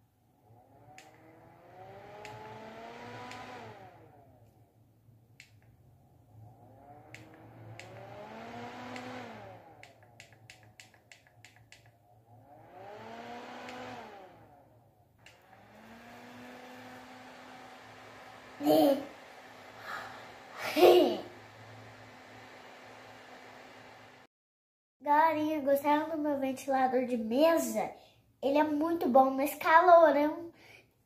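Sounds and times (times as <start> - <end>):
handheld fan whirring: 0.4 - 4.4, 6.3 - 24.3
sharp clicks: 2.2 - 2.6, 3.2 - 3.6, 5.4 - 5.7, 7.1 - 8.1, 8.9 - 9.2, 9.8 - 12.0, 13.6 - 13.9.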